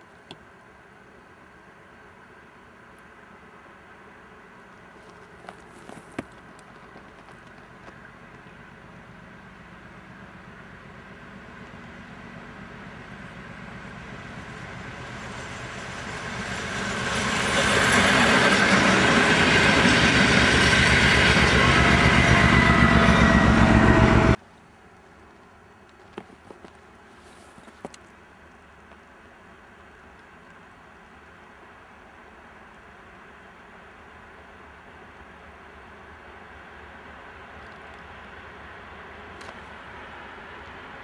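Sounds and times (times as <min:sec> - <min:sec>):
diesel train engine: 0:00.0 - 0:24.4, 0:27.6 - 0:41.0
train wheels on rails: 0:04.7 - 0:24.4.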